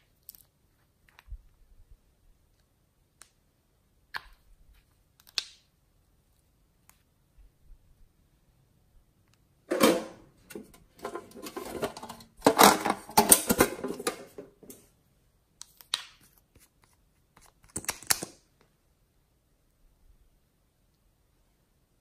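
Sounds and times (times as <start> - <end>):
plastic tube and slime crackling: 4.0 - 7.1.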